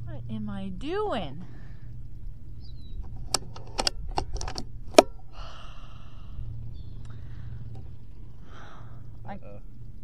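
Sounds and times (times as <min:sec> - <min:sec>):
air rifle action clicking: 0:03.0 - 0:05.2.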